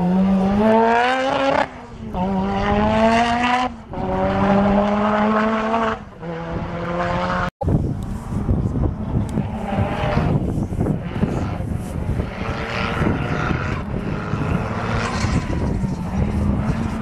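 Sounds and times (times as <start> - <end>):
rough noisy sound: 0.0 - 17.0
race car engine accelerating: 8.8 - 17.0.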